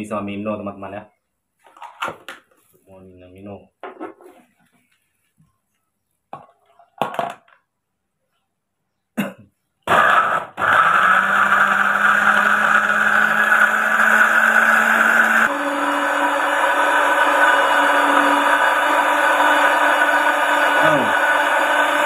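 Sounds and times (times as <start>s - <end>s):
blender motor running: 9.9s - 22.0s.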